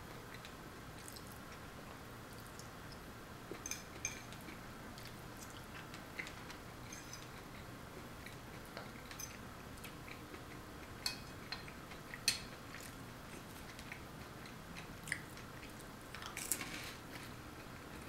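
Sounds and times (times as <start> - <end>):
chewing and mouth sounds: 0.3 - 1.6, 2.3 - 18.0.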